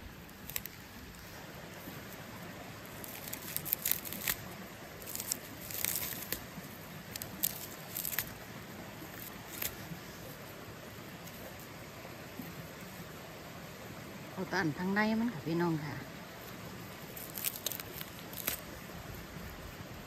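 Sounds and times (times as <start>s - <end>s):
stream rushing: 0.0s - 20.0s
fern stems snapping and rustling: 0.2s - 1.4s, 2.8s - 8.4s, 9.1s - 9.8s, 17.1s - 18.8s.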